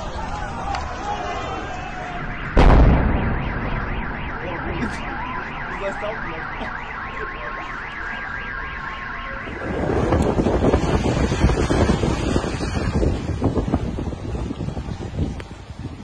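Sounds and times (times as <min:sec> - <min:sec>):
wind buffeting microphone: 0:00.0 - 0:16.0
car alarm wailing: 0:01.1 - 0:10.3
loud explosion blast: 0:02.1 - 0:06.6.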